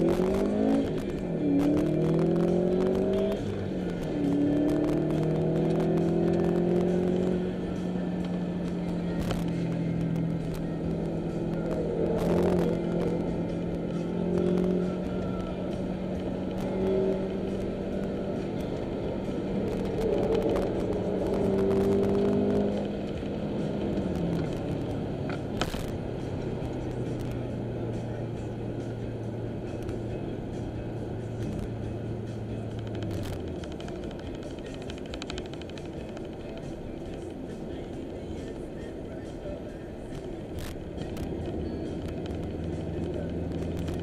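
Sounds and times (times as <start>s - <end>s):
car engine from inside cabin: 0.0s - 44.0s.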